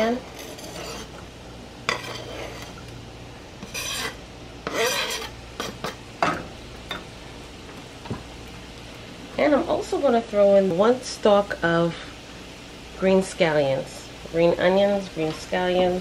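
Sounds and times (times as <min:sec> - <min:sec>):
spatula scraping and clattering: 0:00.0 - 0:01.3, 0:01.9 - 0:02.9, 0:03.6 - 0:07.1
peppers sizzling in butter: 0:00.0 - 0:16.0.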